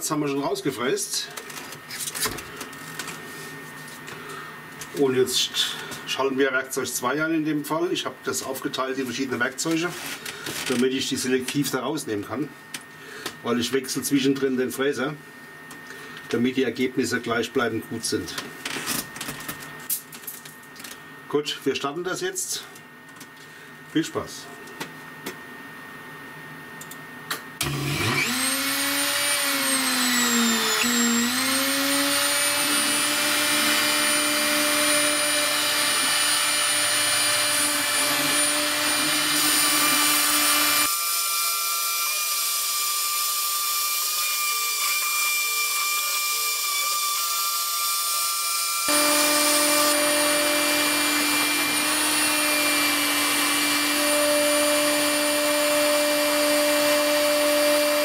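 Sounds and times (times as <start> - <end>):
dust extraction vacuum hum: 0.0 - 58.0
router spindle whine: 27.6 - 58.0.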